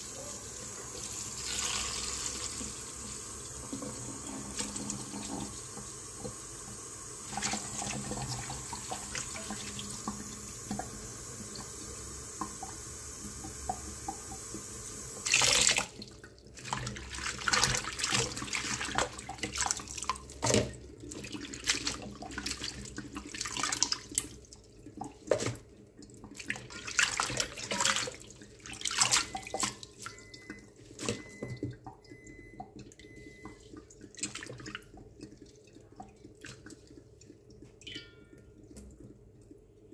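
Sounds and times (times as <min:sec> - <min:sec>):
water splashing and sloshing: 0:15.2 - 0:39.9.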